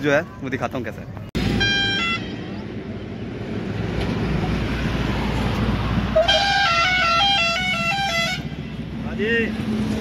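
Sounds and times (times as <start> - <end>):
road traffic rumbling: 0.0 - 10.0
musical car horn tune: 1.5 - 2.4, 6.1 - 8.6.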